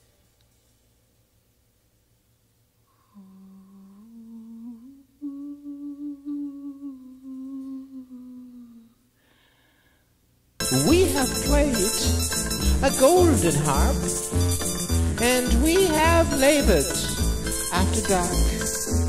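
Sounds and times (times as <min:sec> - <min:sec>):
person humming held notes: 0:02.9 - 0:09.0.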